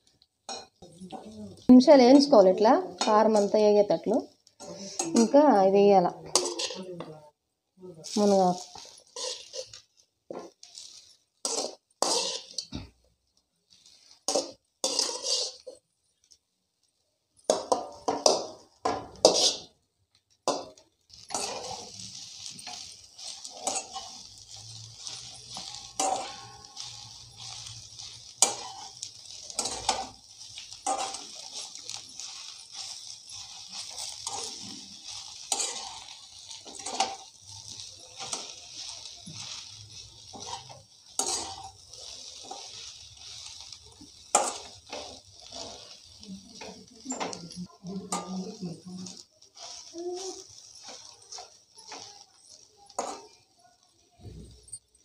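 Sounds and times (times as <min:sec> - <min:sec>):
frying sizzle: 0:00.0 - 0:55.0
spoon scraping steel bowl: 0:06.2 - 0:06.9, 0:08.2 - 0:09.8, 0:10.4 - 0:12.7, 0:14.1 - 0:15.8, 0:17.4 - 0:19.7, 0:20.5 - 0:53.4.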